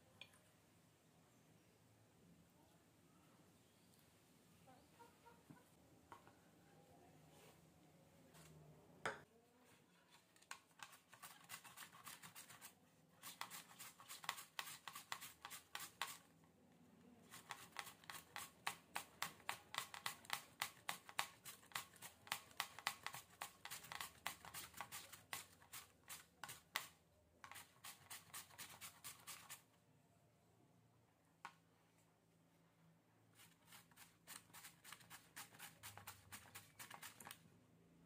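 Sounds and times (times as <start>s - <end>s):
potato rasping on a metal grater: 10.8s - 16.2s, 17.3s - 29.6s, 33.4s - 37.4s.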